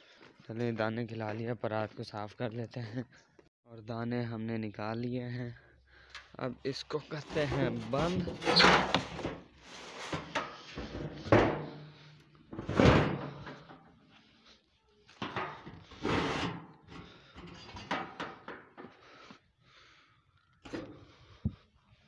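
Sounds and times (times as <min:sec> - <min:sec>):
metal lid clanking and scraping: 0:07.4 - 0:11.8, 0:17.4 - 0:18.5.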